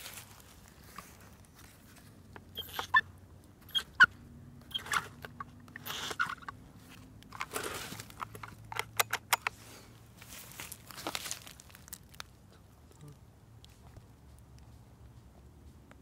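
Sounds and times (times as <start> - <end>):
leaves rustling: 0.0 - 2.2, 9.6 - 12.5
handling crunches and clicks: 0.0 - 3.6, 4.7 - 14.7.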